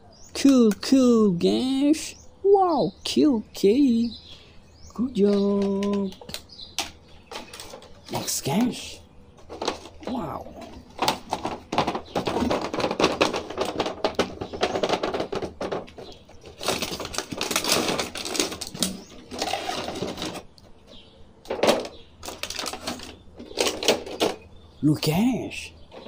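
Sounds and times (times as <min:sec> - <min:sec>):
plastic packaging crackling: 0:16.4 - 0:20.4, 0:22.2 - 0:24.2.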